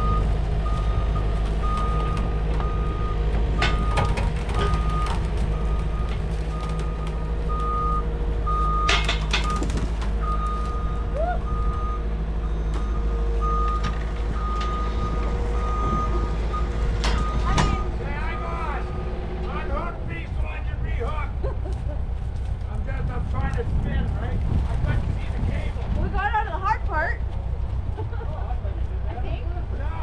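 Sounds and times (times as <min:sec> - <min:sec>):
backup alarm beeping: 0:00.0 - 0:19.1
skid steer engine running: 0:00.0 - 0:30.0
sharp metallic clanks: 0:08.8 - 0:09.6.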